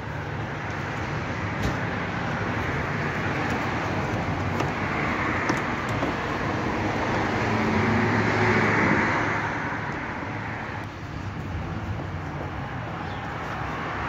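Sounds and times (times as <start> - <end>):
road traffic noise: 0.0 - 14.0
vehicle passing by: 0.9 - 10.9.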